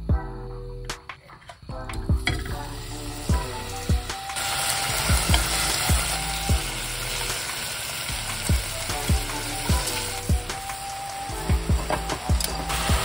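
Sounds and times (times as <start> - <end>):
background music with steady beat: 0.0 - 13.0
meat sizzling in oil: 2.8 - 13.0.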